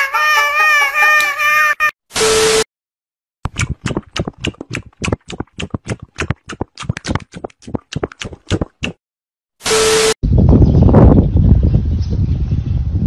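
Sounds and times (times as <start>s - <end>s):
wet chomping and smacking: 3.5s - 9.0s.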